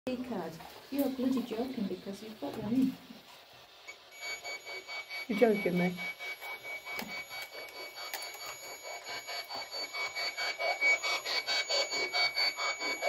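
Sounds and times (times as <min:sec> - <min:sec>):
faint high whine: 0:00.1 - 0:13.0
choppy pulsing radio static: 0:04.2 - 0:13.0.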